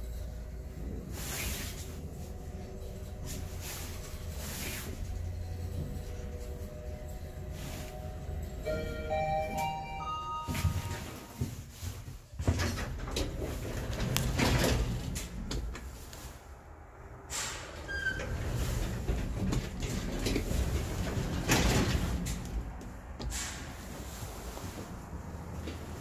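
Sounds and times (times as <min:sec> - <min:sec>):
elevator arrival chime: 0:07.3 - 0:11.6
short high beep: 0:08.7 - 0:11.3
elevator door clunks: 0:08.7 - 0:11.6, 0:12.4 - 0:15.8, 0:17.6 - 0:22.4.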